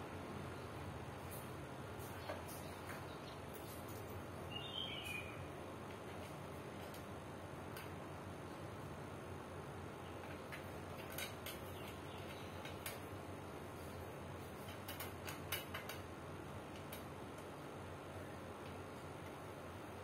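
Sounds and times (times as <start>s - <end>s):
fan parts clicking: 5.7s - 20.0s.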